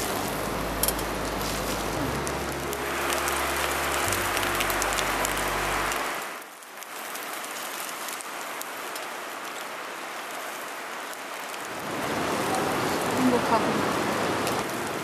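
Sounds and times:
low hum: 0:00.0 - 0:06.2
meat sizzling on a grill: 0:00.0 - 0:15.0.

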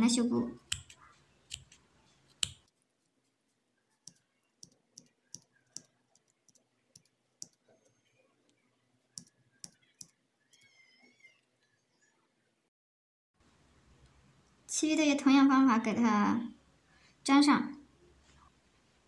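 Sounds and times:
small scissors snipping: 0:00.7 - 0:02.7.

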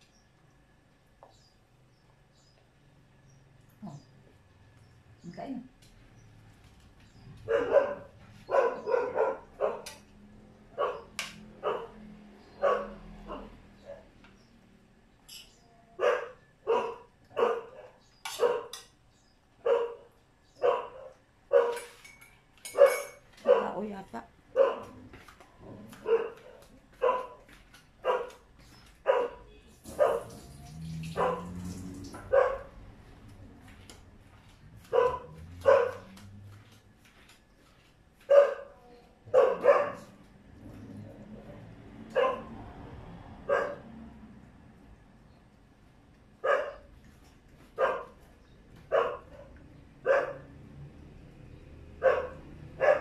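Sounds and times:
dog barking: 0:07.4 - 0:10.1, 0:10.7 - 0:14.1, 0:16.0 - 0:18.8, 0:19.6 - 0:21.9, 0:22.7 - 0:23.8, 0:24.5 - 0:25.1, 0:25.8 - 0:28.4, 0:29.0 - 0:30.5, 0:31.2 - 0:31.6, 0:32.2 - 0:32.8, 0:34.8 - 0:36.2, 0:38.3 - 0:40.2, 0:42.1 - 0:42.6, 0:43.4 - 0:43.9, 0:46.4 - 0:46.9, 0:47.8 - 0:48.2, 0:48.9 - 0:50.5, 0:52.0 - 0:53.0.

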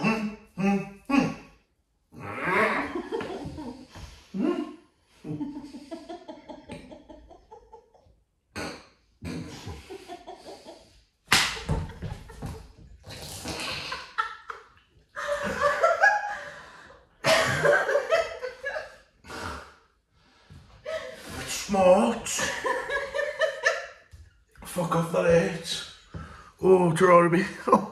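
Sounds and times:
people laughing: 0:02.7 - 0:04.0, 0:05.2 - 0:08.0, 0:09.5 - 0:10.9, 0:11.5 - 0:19.0, 0:21.9 - 0:23.8
tortilla slapping a face: 0:11.3 - 0:13.6.

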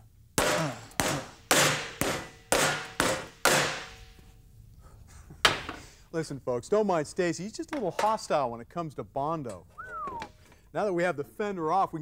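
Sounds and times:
hammer striking metal: 0:00.4 - 0:04.2.

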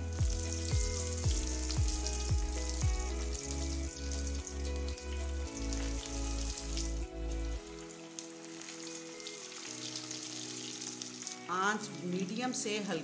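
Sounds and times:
background music with pulsing bass: 0:00.0 - 0:07.8
fish frying in hot oil: 0:00.0 - 0:12.0.

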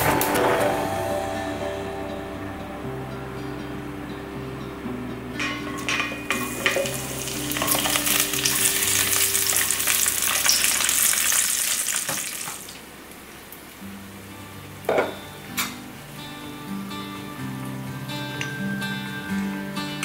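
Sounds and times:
garlic and ginger sizzling in oil: 0:05.4 - 0:12.8.

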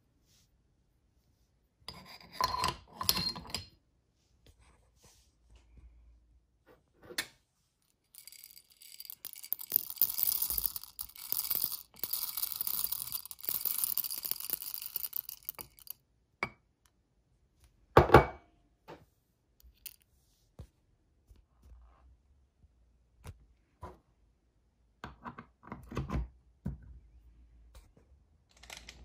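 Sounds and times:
coffee beans rattling into hopper: 0:08.2 - 0:15.9.

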